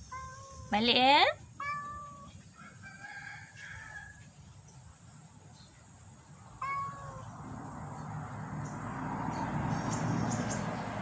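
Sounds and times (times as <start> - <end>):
cat meowing: 0.0 - 0.8, 1.6 - 2.4, 6.6 - 7.4.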